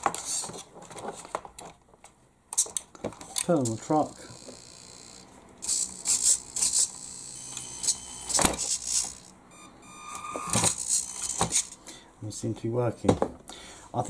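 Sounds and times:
small electric motor whirring: 4.0s - 11.8s.

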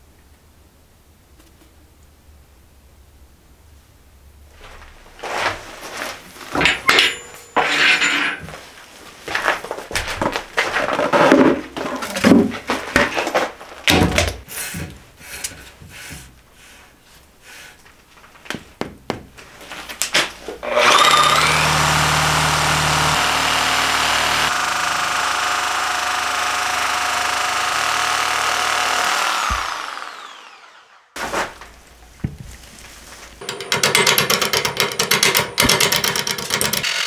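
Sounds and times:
workshop knocks and clatter: 6.4s - 8.6s, 9.4s - 15.0s, 18.4s - 19.6s, 33.4s - 36.8s
reciprocating saw cutting: 20.6s - 31.2s.

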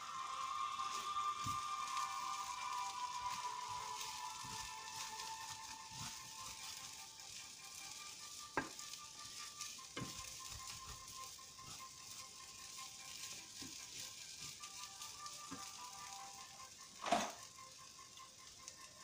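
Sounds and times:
wooden spatula stirring: 0.0s - 17.4s
rice sizzling in oil: 0.0s - 19.0s
spatula tapping on pan: 8.6s - 8.8s, 10.0s - 10.2s.

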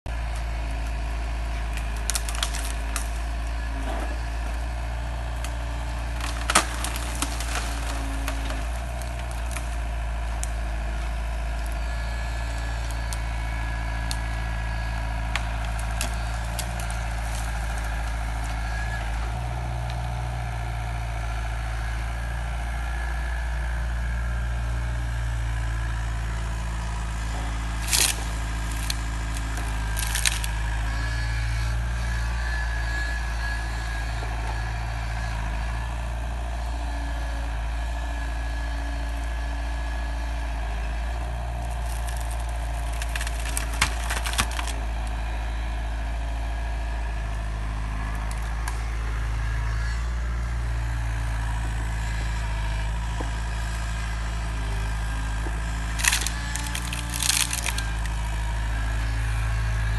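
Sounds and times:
diesel engine running: 0.1s - 59.9s
wood and branches cracking: 0.2s - 21.2s, 26.3s - 33.5s, 38.8s - 45.2s, 48.1s - 48.8s, 54.9s - 58.6s.

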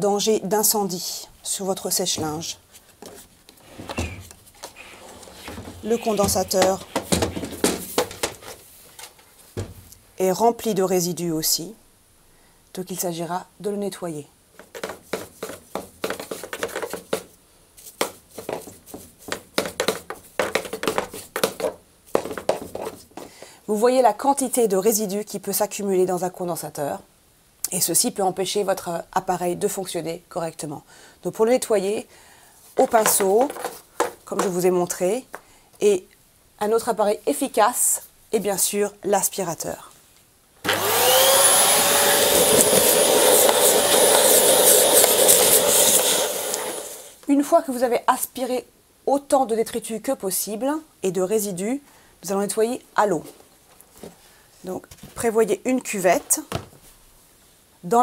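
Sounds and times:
brush scrubbing plastic: 4.3s - 8.6s, 14.6s - 23.0s, 42.4s - 46.2s
vacuum cleaner motor whining: 40.7s - 47.1s.

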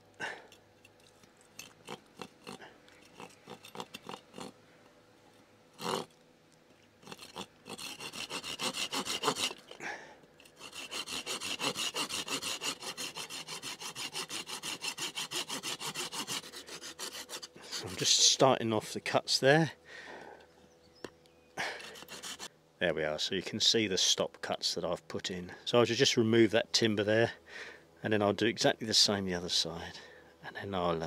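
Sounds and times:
hand saw rasping: 1.5s - 4.5s, 5.8s - 6.1s, 7.0s - 9.8s, 10.4s - 18.2s, 21.6s - 22.5s.

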